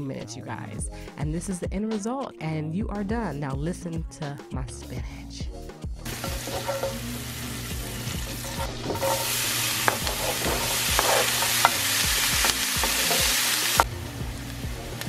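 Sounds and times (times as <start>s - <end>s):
wooden spoon stirring: 6.1s - 7.2s, 8.2s - 13.7s
butter sizzling in a skillet: 6.1s - 15.0s
spoon tapping against pan: 6.2s - 7.0s, 8.5s - 13.9s.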